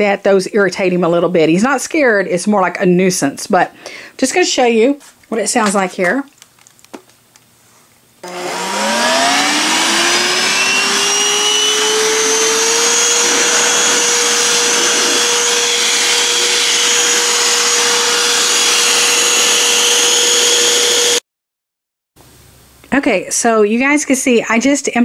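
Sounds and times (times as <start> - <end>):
stick vacuum motor whining: 8.2 - 21.2
rushing air: 8.3 - 19.4.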